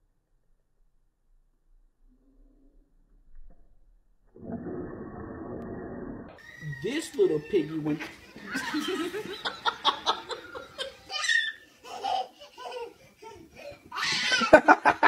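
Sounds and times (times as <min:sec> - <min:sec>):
people laughing: 0:06.6 - 0:13.2, 0:14.0 - 0:15.0.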